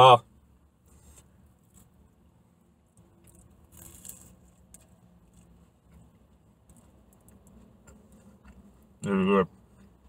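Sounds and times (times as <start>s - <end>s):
soft rustle: 0.8s - 2.2s
chewing pastry: 2.9s - 10.0s
car cabin hum: 4.4s - 10.0s.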